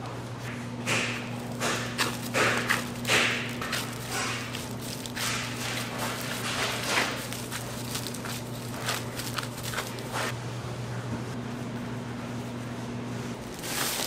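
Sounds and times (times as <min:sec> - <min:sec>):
machinery hum: 0:00.0 - 0:14.0.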